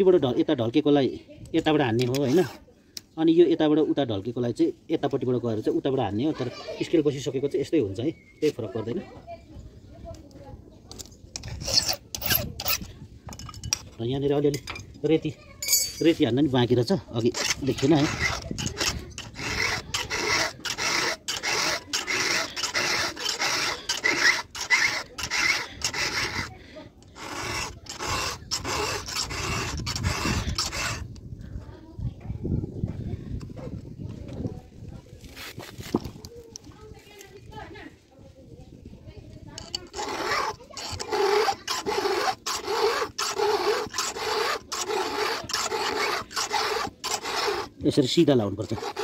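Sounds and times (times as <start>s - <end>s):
file rasping on chainsaw chain: 2.0s - 2.6s, 11.4s - 14.0s, 17.2s - 31.2s, 39.5s - 49.0s.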